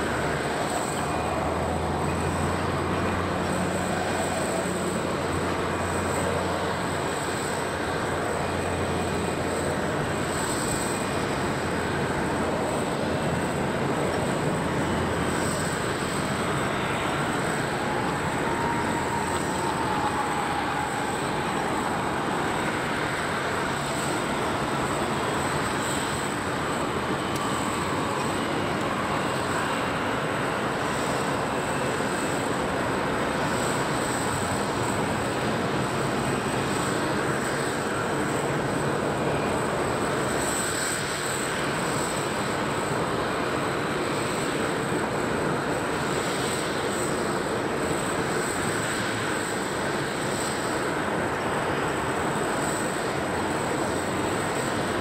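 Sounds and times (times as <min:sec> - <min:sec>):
jet and machinery rumble: 0:00.0 - 0:55.0.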